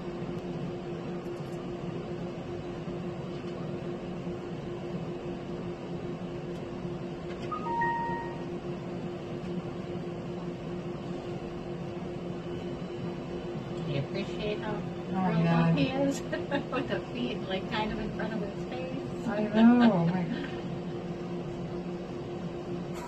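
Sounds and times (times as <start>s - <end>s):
low electrical hum: 0.0s - 23.0s
two-note electronic beep: 7.5s - 8.5s.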